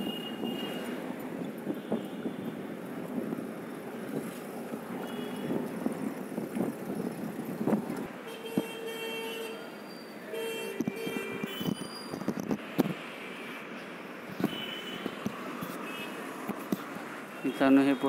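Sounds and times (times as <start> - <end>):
busy street traffic: 0.0 - 18.0
vehicle horn: 8.2 - 9.6, 10.3 - 11.8.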